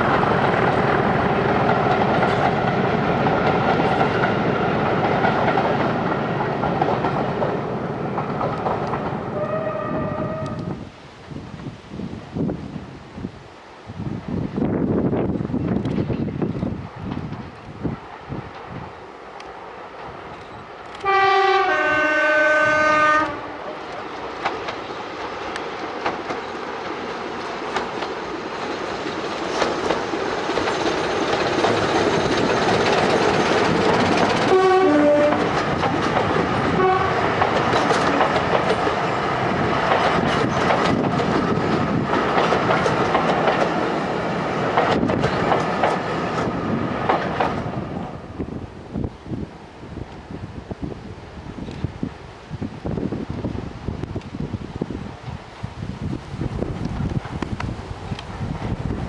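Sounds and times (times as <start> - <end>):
wheels clicking over rail joints: 0.0 - 9.4, 23.7 - 48.1
two-tone train horn: 9.3 - 10.8, 21.0 - 23.7, 34.4 - 35.5, 36.7 - 37.4.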